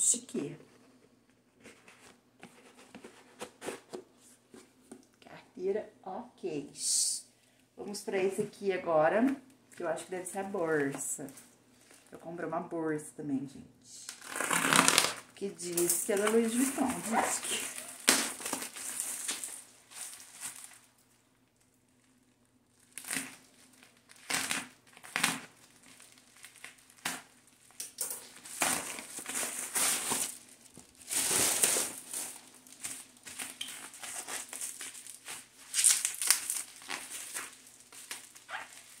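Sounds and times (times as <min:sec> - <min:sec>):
packaging crinkling and rustling: 0:10.9 - 0:12.2, 0:14.1 - 0:39.0.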